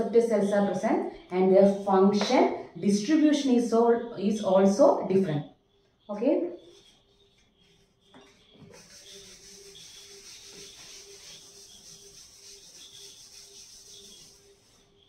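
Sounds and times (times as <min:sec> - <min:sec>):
duster rubbing chalkboard: 0:06.6 - 0:15.0.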